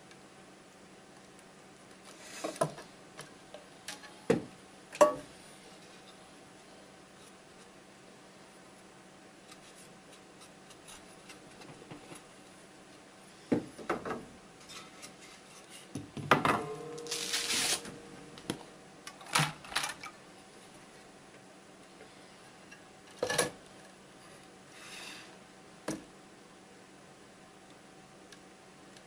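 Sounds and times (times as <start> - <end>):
faint steady hum: 0.0 - 29.0
scraping rustle: 17.0 - 18.0.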